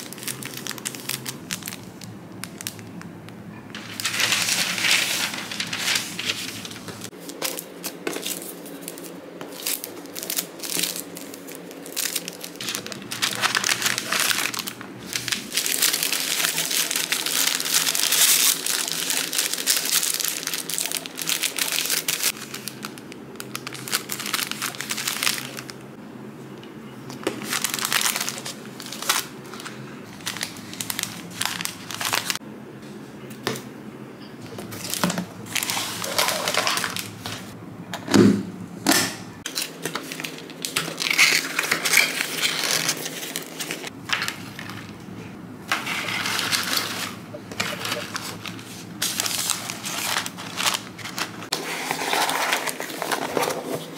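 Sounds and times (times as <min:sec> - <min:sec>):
paper packaging crinkling: 0:00.0 - 0:03.1, 0:03.7 - 0:25.8, 0:27.0 - 0:32.4, 0:34.5 - 0:37.6, 0:39.4 - 0:45.0, 0:45.7 - 0:53.9.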